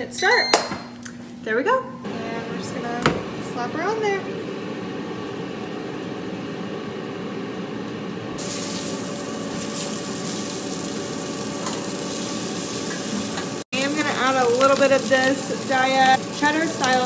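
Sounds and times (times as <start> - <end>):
patty sizzling in a pan: 8.4 - 17.0.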